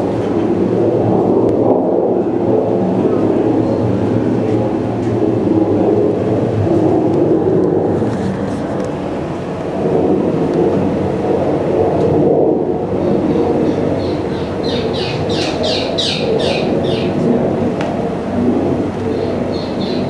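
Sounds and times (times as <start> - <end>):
low rumble: 0.0 - 20.0
high downward-sweeping bird chirps: 13.6 - 17.1, 19.1 - 20.0.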